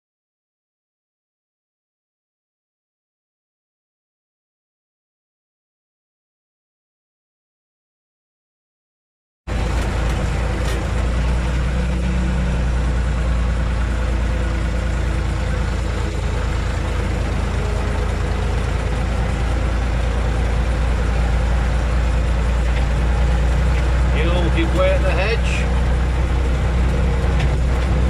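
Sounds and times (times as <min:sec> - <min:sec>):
tractor diesel engine running: 0:09.5 - 0:28.0.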